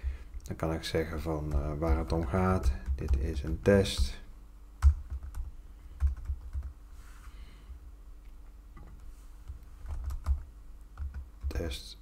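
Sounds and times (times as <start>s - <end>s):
computer keyboard typing: 1.5s - 4.1s, 4.8s - 6.7s, 9.8s - 11.7s.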